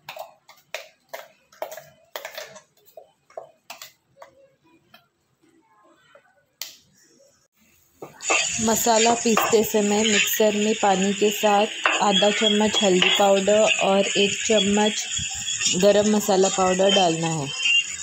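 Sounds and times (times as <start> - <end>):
spoon scraping steel jar: 8.2 - 18.0
spoon knocking on jar rim: 11.8 - 12.0.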